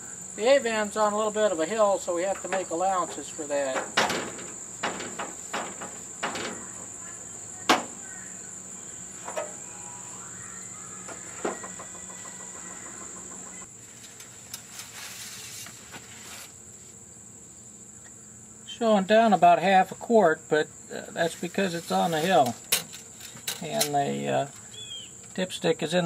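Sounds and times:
insects chirring: 0:00.0 - 0:26.0
van hood clicks and knocks: 0:02.3 - 0:07.0.

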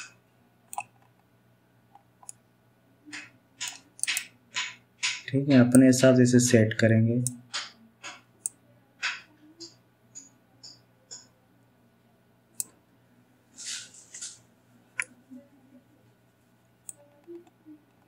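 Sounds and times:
mouse and keyboard clicks: 0:00.7 - 0:01.2, 0:03.1 - 0:05.8, 0:07.2 - 0:11.3
faint low hum: 0:05.2 - 0:18.0.

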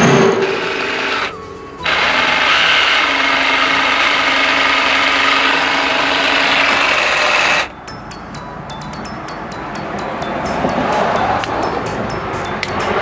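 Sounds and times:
reciprocating saw cutting metal: 0:00.0 - 0:07.7.

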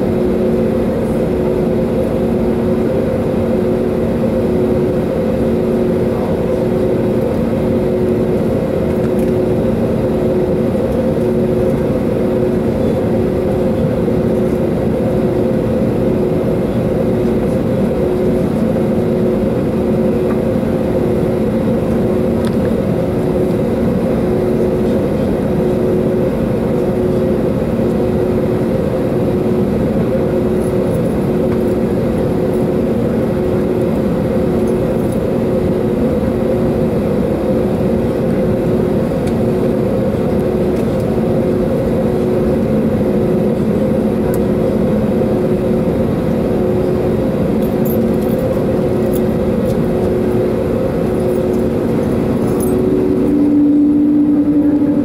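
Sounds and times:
aircraft cabin drone: 0:00.0 - 0:55.0
faint pulsing tone: 0:51.1 - 0:55.0.

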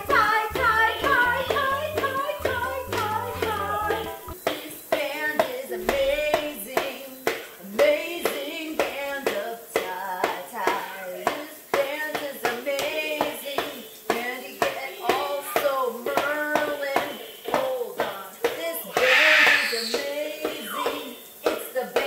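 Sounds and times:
drumsticks tapping toy drums: 0:00.0 - 0:22.0
woman singing without words: 0:00.0 - 0:22.0.

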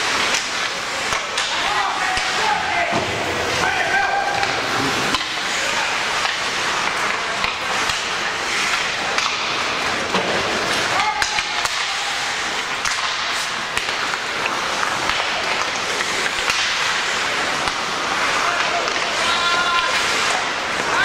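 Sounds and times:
crowd chatter in echoing hall: 0:00.0 - 0:21.0.

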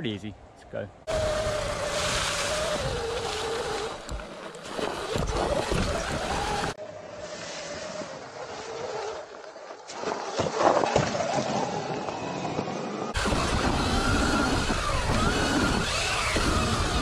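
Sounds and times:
electric motor whine: 0:01.1 - 0:04.2, 0:12.0 - 0:17.0
tyre and wind noise: 0:01.1 - 0:09.1, 0:09.9 - 0:17.0.

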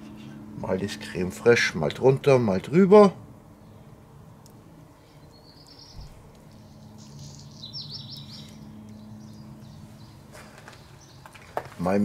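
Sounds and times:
steady low hum: 0:00.0 - 0:12.0
songbird singing: 0:03.4 - 0:12.0.

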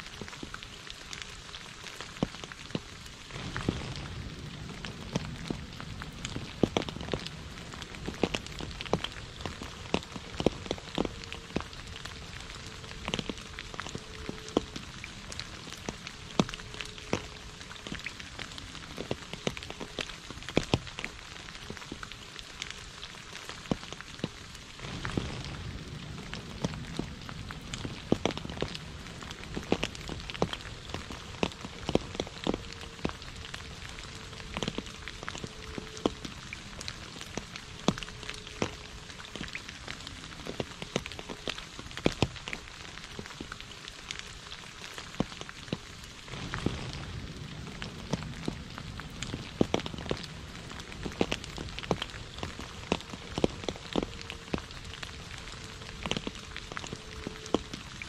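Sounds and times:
rain falling into puddle: 0:00.0 - 0:58.0
low rumble: 0:03.3 - 0:17.8, 0:24.7 - 0:35.1, 0:46.2 - 0:53.8.

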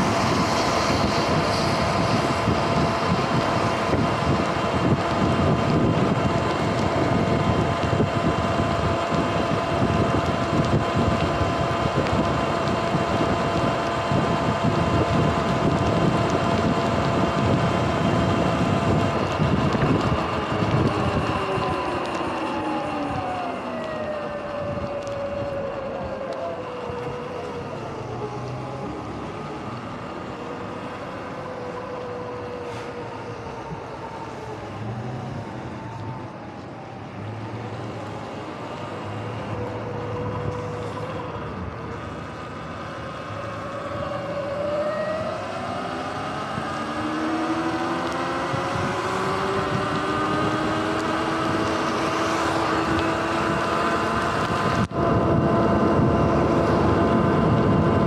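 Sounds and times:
wind: 0:00.0 - 0:58.0
electric dirt bike whining: 0:43.4 - 0:58.0.

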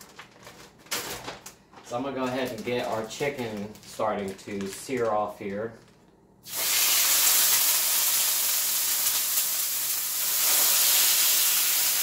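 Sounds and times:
chicken sizzling in oil: 0:06.5 - 0:12.0.

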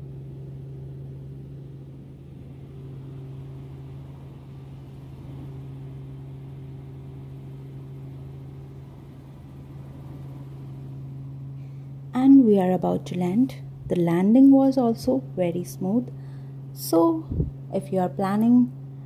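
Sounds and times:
helicopter engine and rotors droning: 0:00.0 - 0:19.0.

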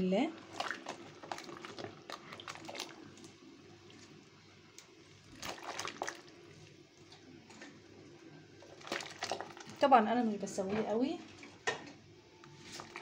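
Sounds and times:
water sloshing in a pot: 0:00.0 - 0:13.0
short splashes: 0:00.4 - 0:03.0, 0:05.3 - 0:06.3.

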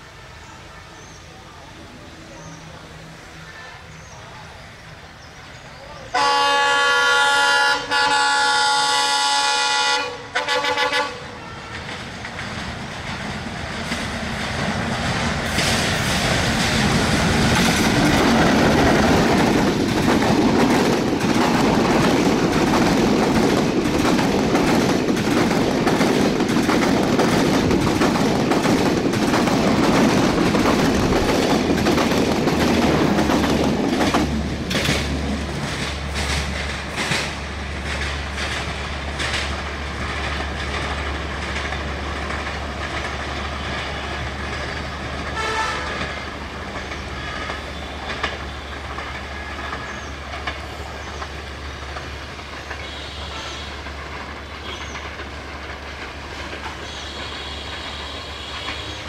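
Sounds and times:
train low rumble: 0:00.0 - 0:59.0
locomotive multi-tone horn: 0:06.1 - 0:12.0, 0:45.3 - 0:50.8, 0:52.7 - 0:55.0, 0:56.8 - 0:59.0
train wheels clattering over rail joints: 0:11.7 - 0:58.0.

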